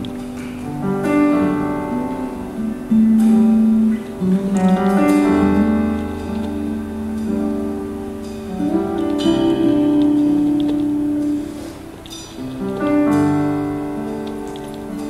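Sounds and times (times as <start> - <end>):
soft guitar chords: 0.0 - 15.0.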